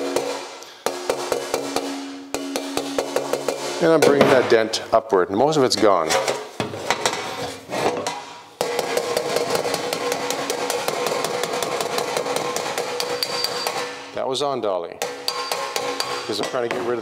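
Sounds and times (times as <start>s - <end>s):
hammer tapping on sheet metal: 0.0s - 4.4s, 8.6s - 13.9s, 15.0s - 17.0s.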